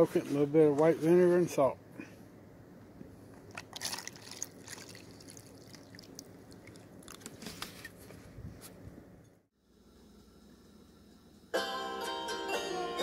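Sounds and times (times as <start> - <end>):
light liquid sounds: 3.4 - 7.7
salt crackling into liquid: 3.5 - 7.4.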